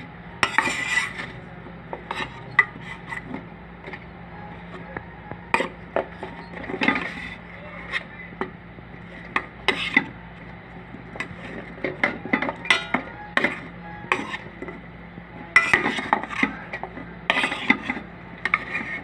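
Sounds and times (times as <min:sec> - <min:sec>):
metal spoon clinking on pot: 0:12.0 - 0:14.5, 0:15.6 - 0:17.9.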